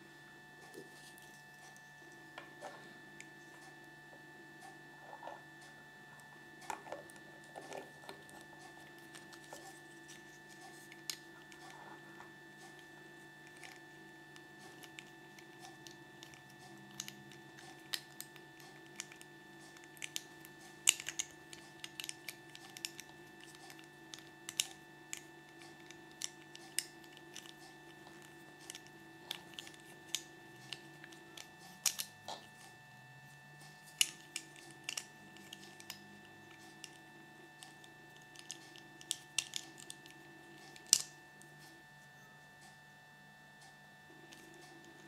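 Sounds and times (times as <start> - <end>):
faint steady hum: 0.0 - 45.0
plastic toy clicks and taps: 16.2 - 27.6, 40.8 - 41.1.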